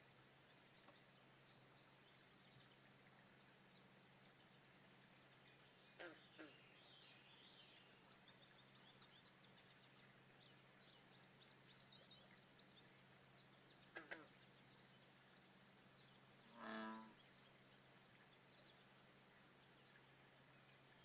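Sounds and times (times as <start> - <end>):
faint steady low hum: 0.0 - 21.0
low frog croak: 5.9 - 6.6, 13.9 - 14.4, 16.4 - 17.2
downward-sweeping calls: 16.4 - 17.6.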